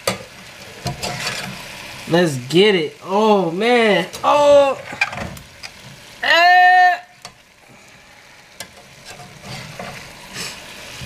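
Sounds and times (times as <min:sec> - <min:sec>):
food sizzling in a hot pan: 0:00.0 - 0:11.0
metal spatula scraping pan: 0:00.1 - 0:01.7, 0:08.6 - 0:11.0.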